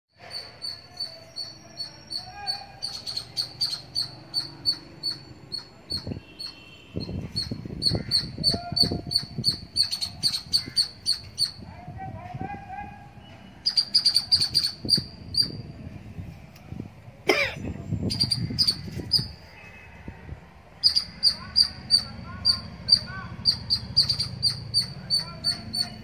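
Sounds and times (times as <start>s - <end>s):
small bird chirping: 0.2s - 11.6s, 13.6s - 15.7s, 18.0s - 19.5s, 20.8s - 26.0s.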